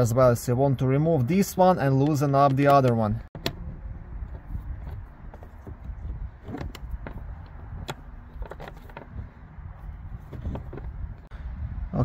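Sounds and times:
low steady rumble: 3.1s - 12.0s.

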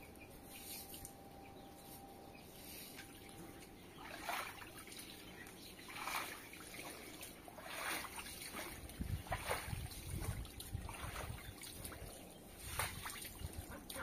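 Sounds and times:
water splashing on stone floor: 4.0s - 14.0s.

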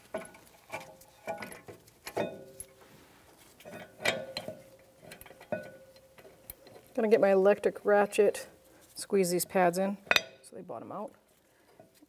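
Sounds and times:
metal bolts clinking: 3.7s - 6.9s, 10.1s - 10.4s.

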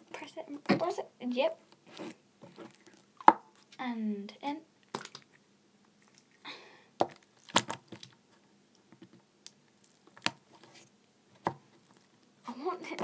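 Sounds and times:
slime squelching: 1.8s - 3.8s, 4.8s - 8.4s, 9.4s - 10.9s, 11.6s - 13.0s.

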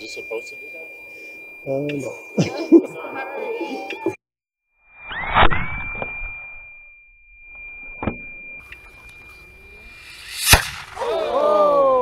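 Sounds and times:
steady high tone: 0.0s - 2.6s, 6.2s - 11.6s
squealing whistles: 5.0s - 6.4s, 8.6s - 12.0s
rocket motor exploding bang: 9.9s - 11.2s
sharp crack: 10.0s - 11.4s.

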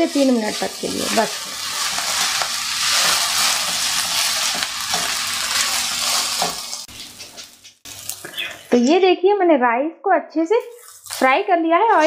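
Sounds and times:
rice sizzling in hot oil: 0.0s - 8.8s, 10.7s - 12.0s
spatula scraping pan: 0.5s - 8.3s.

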